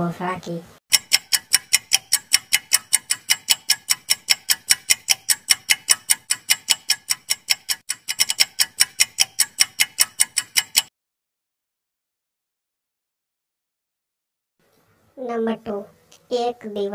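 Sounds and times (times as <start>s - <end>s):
fast clock ticks: 0.9s - 10.9s.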